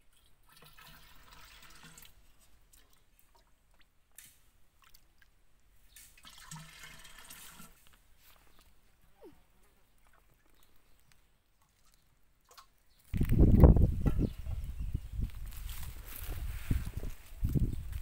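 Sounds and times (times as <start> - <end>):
water pouring into pot: 0.5 - 2.2, 6.2 - 7.8.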